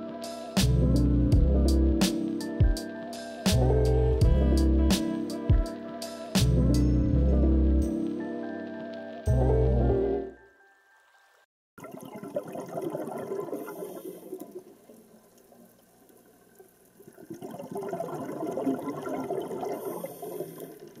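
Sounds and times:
water sounds: 11.0s - 21.0s.

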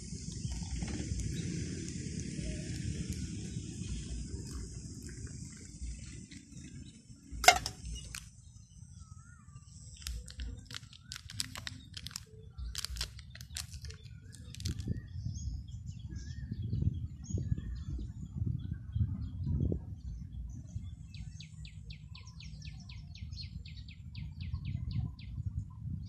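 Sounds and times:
birds chirping: 0.0s - 25.6s
wind rumble on microphone: 0.0s - 26.0s
hot water pouring into cup: 0.1s - 6.6s
metal clank: 7.4s - 7.9s.

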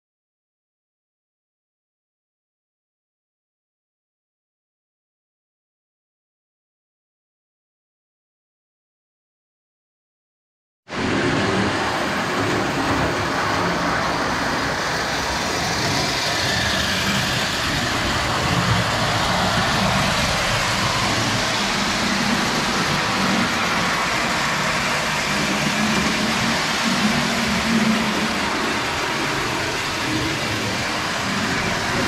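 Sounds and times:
toy train running on track: 11.1s - 32.0s.

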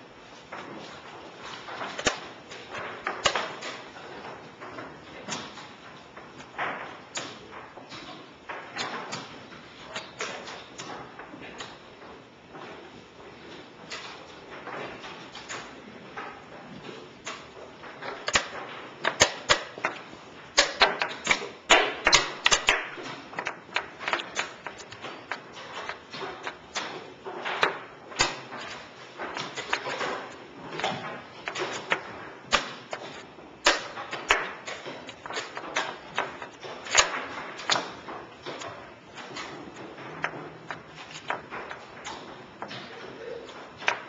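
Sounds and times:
chess pieces clicking on board: 16.7s - 44.0s.

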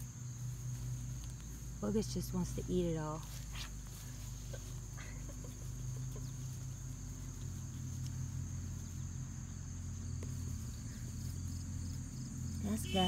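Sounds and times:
faint rustles: 0.0s - 12.8s
low mechanical hum: 0.0s - 13.0s.

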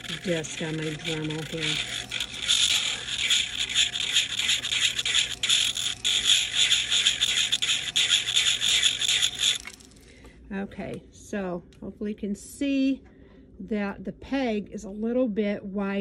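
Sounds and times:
rotary tool sanding: 0.0s - 10.0s.

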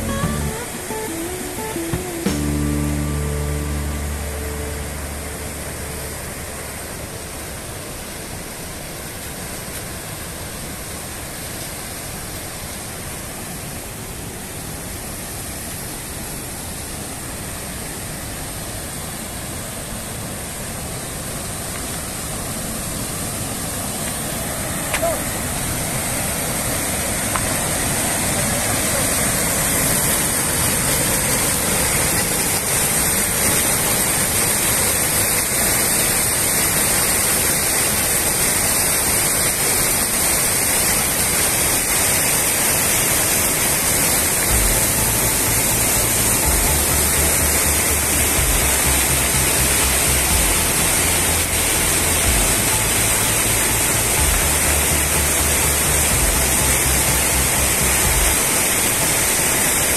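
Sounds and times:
low bass notes: 0.0s - 6.9s, 44.5s - 58.6s
waterfall crashing: 0.0s - 59.9s.

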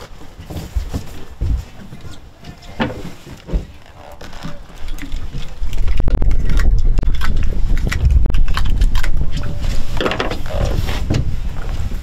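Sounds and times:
wind buffeting microphone: 3.6s - 12.0s.

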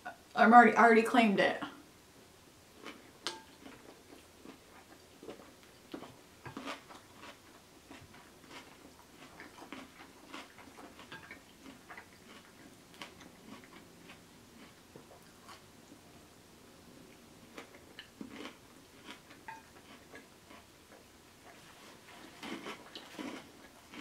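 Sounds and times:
close chewing with wet mouth clicks: 2.8s - 16.0s, 17.1s - 24.0s.

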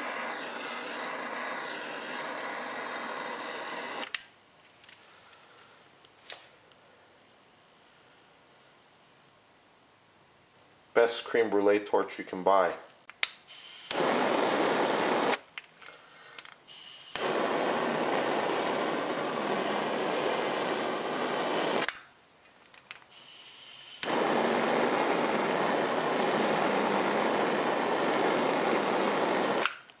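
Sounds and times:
torch flame hissing: 0.0s - 4.3s, 13.5s - 15.5s, 16.6s - 22.0s, 23.1s - 29.9s.

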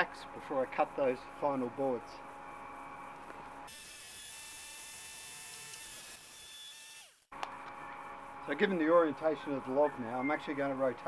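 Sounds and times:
electric winch motor whining: 3.7s - 7.3s.

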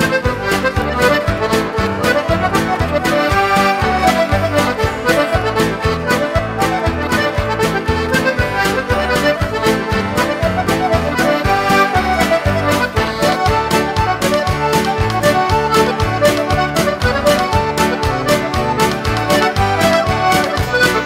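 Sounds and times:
accordion folk tune: 0.0s - 21.0s
steady beat: 0.0s - 21.0s.

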